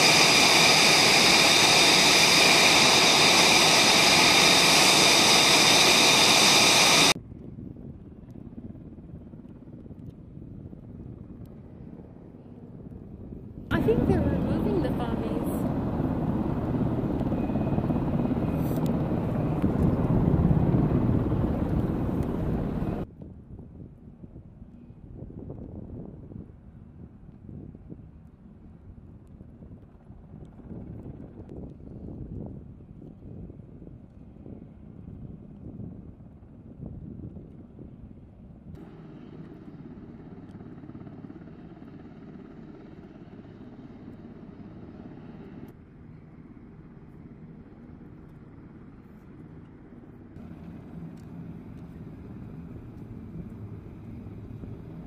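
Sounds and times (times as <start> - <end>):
jet engine rumble: 0.0 - 7.2, 13.4 - 23.1, 50.2 - 55.0.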